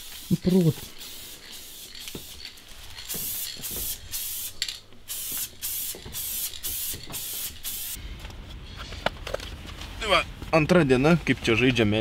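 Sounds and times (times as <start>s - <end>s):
spray paint can spraying: 0.0s - 8.0s.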